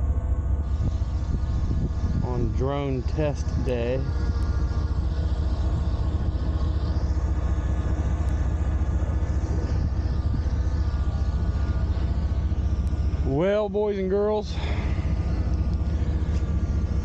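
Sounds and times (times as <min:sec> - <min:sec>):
drone propellers humming: 0:00.0 - 0:17.0.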